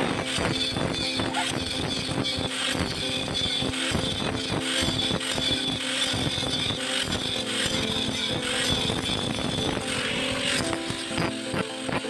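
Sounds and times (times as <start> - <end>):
angle grinder cutting steel pipe: 0.0 - 12.0.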